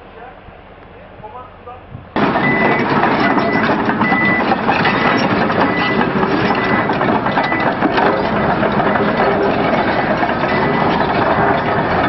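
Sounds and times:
diesel engine running: 0:01.5 - 0:12.0
steel tracks clattering: 0:02.0 - 0:12.0
short high beeps: 0:02.4 - 0:04.5.

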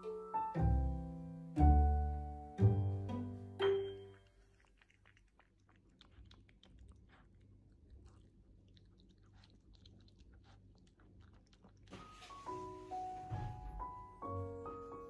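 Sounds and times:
teeth clicking on food: 0:04.1 - 0:12.0
dog chewing and crunching food: 0:04.1 - 0:13.1.

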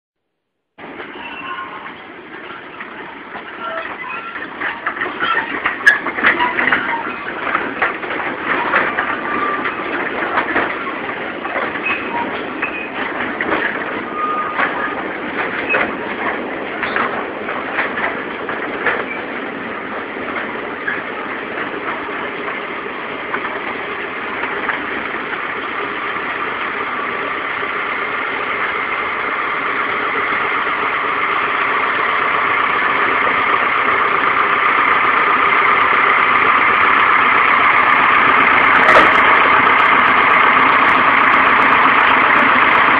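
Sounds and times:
locomotive engine running: 0:00.8 - 0:42.9
wheels clicking on rails: 0:00.8 - 0:42.9.

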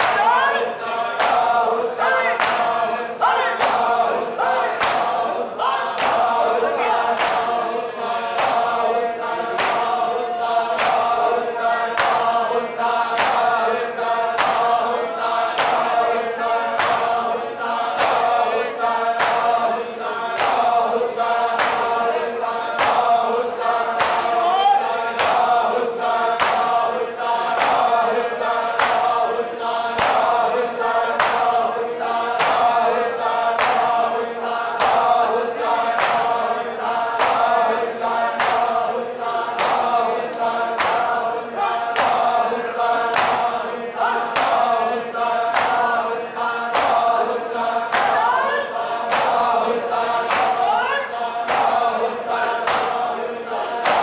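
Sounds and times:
men chanting in unison: 0:00.0 - 0:54.0
hands slapping chests: 0:01.2 - 0:02.9, 0:03.5 - 0:05.4, 0:06.0 - 0:12.4, 0:13.2 - 0:13.7, 0:14.4 - 0:16.1, 0:16.8 - 0:17.2, 0:17.9 - 0:19.6, 0:20.3 - 0:22.1, 0:22.8 - 0:26.9, 0:27.5 - 0:29.2, 0:30.0 - 0:31.7, 0:32.4 - 0:34.1, 0:34.8 - 0:36.5, 0:37.2 - 0:37.7, 0:38.3 - 0:38.8, 0:39.6 - 0:41.2, 0:42.0 - 0:43.6, 0:44.3 - 0:44.7, 0:45.5 - 0:46.0, 0:46.7 - 0:48.4, 0:49.1 - 0:53.1, 0:53.8 - 0:54.0.

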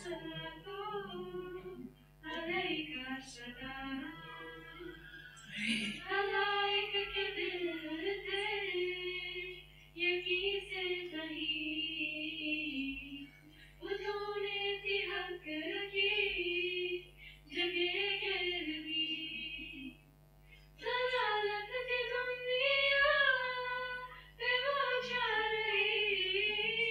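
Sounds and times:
women chanting: 0:00.0 - 0:11.7.

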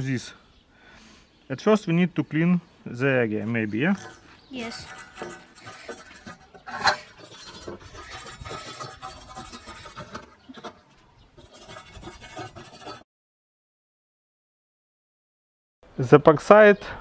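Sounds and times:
wire brush scratching steel: 0:03.8 - 0:13.0.

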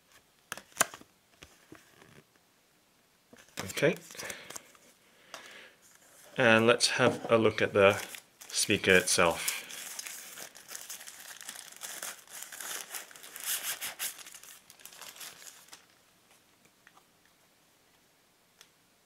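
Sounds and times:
plastic wrapping crinkling: 0:07.8 - 0:16.0.

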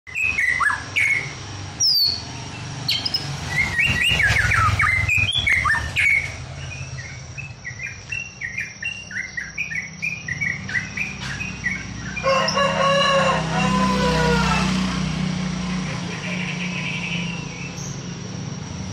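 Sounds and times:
bird singing whistled phrases: 0:00.1 - 0:02.2, 0:02.9 - 0:12.2.

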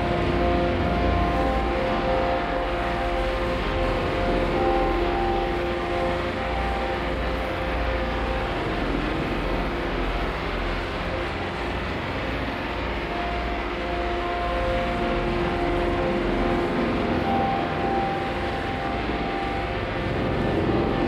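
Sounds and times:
long held tones: 0:00.0 - 0:21.0
rumbling drone music: 0:00.0 - 0:21.0.

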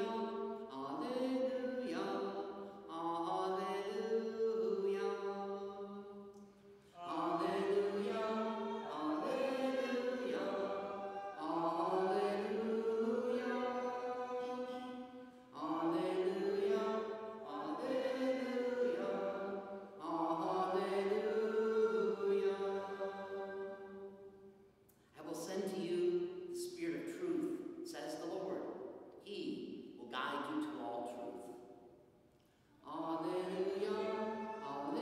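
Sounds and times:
man singing chant: 0:07.0 - 0:14.9.

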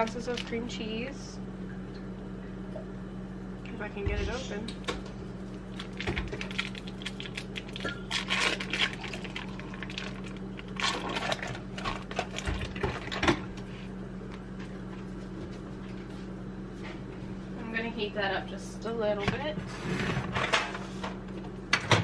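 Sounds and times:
foil wrapper crinkling: 0:05.6 - 0:12.8.

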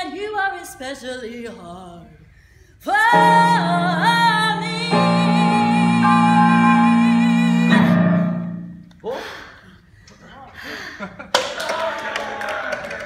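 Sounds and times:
woman singing with vibrato: 0:00.0 - 0:02.2, 0:02.8 - 0:08.8
held accompaniment chords: 0:03.0 - 0:09.0.

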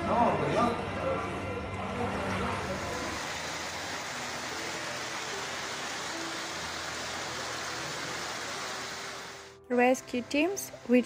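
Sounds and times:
floodwater rushing: 0:01.9 - 0:09.6
heavy rain: 0:02.6 - 0:09.5.

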